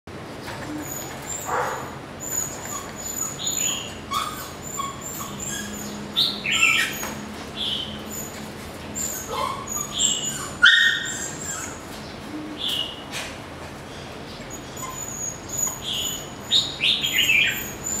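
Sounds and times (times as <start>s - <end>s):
small birds chirping: 0.4s - 8.4s, 13.9s - 18.0s
puppy whimpering and yelping: 0.6s - 7.2s, 8.1s - 12.0s, 14.5s - 18.0s.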